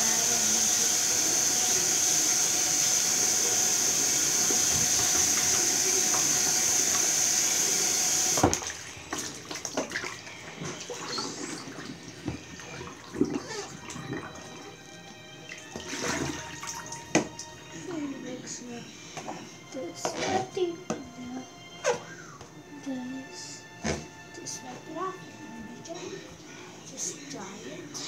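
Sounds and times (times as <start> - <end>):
tap water running: 0.0 - 18.1.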